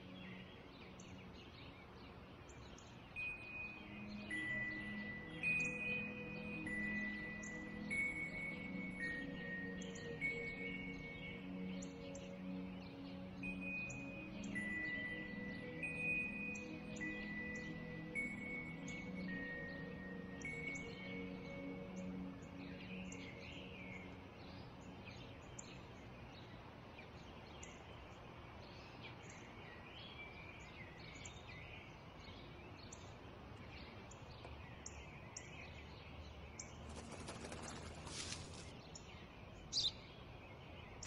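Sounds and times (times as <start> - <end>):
sparrows chirping: 0.0 - 41.0.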